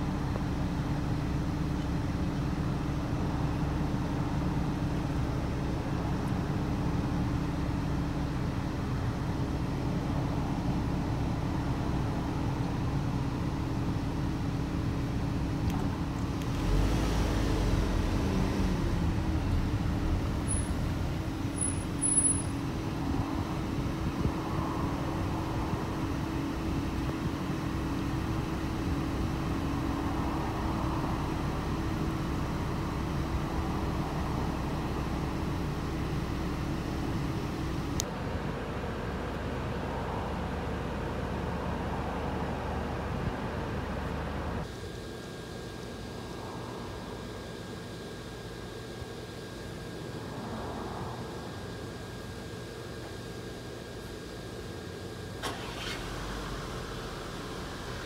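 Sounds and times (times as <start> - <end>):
steady mechanical hum: 0.0 - 58.0
vehicle passing by: 16.5 - 20.4.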